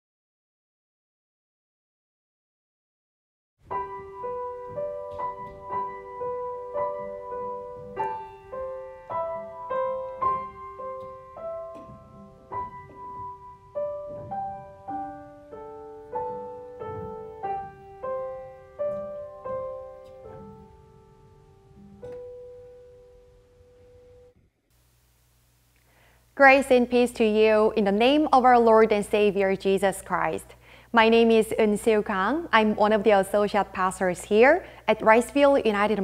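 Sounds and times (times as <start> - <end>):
slow piano melody: 3.6 - 24.7.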